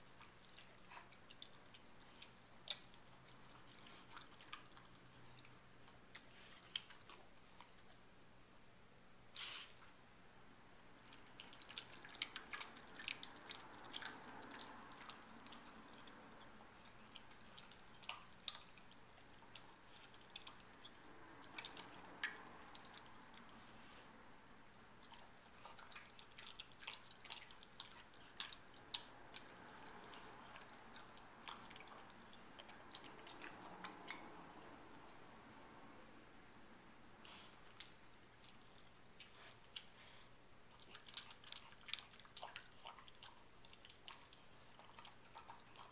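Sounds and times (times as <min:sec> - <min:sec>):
dog chewing from metal bowl: 0:40.7 - 0:45.9.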